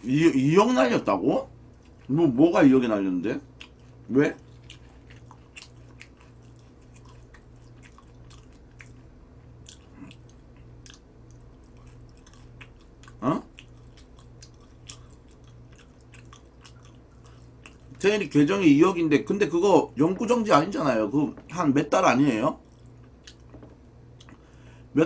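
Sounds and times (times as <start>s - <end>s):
crunchy food being chewed: 1.6s - 2.2s, 3.3s - 19.4s, 22.5s - 24.6s.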